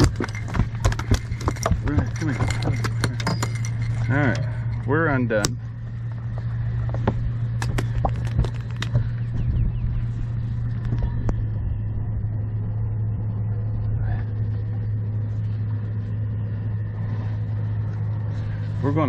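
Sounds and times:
sharp clicks and knocks: 0:00.0 - 0:05.6, 0:06.3 - 0:09.2
outboard motor running: 0:00.0 - 0:19.0.

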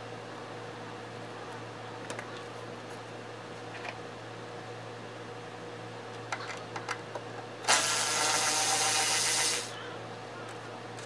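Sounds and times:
power driver running: 0:07.6 - 0:09.8.

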